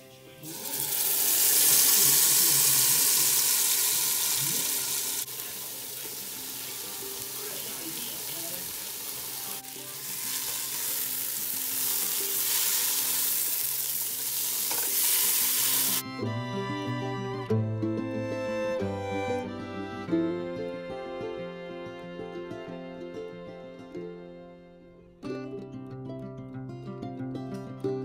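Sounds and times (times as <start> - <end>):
oil sizzling in pan: 0.4 - 16.0.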